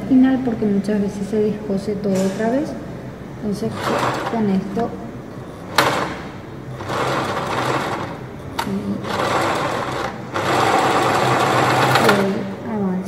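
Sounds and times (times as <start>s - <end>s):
sewing machine stitching: 3.7s - 4.5s, 5.7s - 12.5s.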